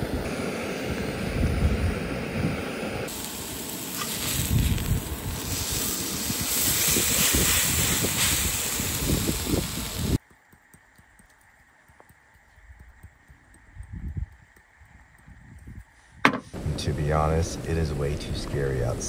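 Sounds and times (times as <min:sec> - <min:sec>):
wind buffeting microphone: 0:00.0 - 0:03.1, 0:04.2 - 0:10.2, 0:12.6 - 0:19.0
gas burner hissing: 0:00.0 - 0:10.2, 0:16.4 - 0:19.0
steak sizzling on a griddle: 0:03.1 - 0:10.2.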